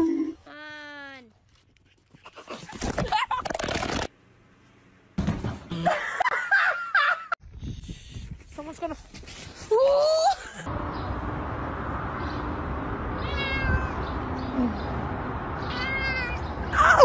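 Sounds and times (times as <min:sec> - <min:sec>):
cat meowing: 0:13.2 - 0:14.1, 0:15.6 - 0:16.8.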